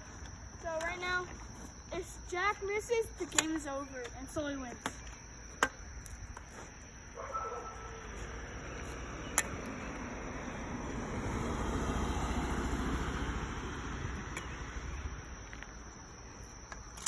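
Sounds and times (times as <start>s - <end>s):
car driving past: 8.2s - 15.2s.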